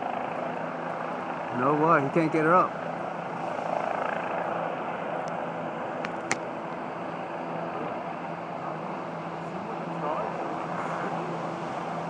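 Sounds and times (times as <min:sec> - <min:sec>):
distant helicopter hum: 0:00.0 - 0:12.0.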